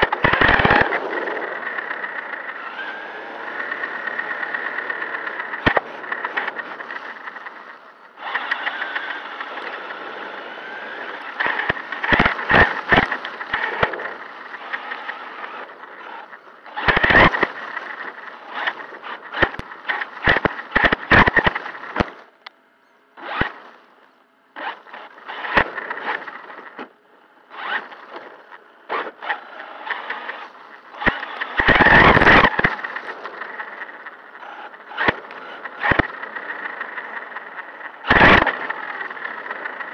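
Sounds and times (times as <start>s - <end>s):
chassis clattering over bumps: 0.0s - 22.4s
tyres rumbling on pavement: 0.0s - 22.4s
electric motor whine: 0.0s - 39.9s.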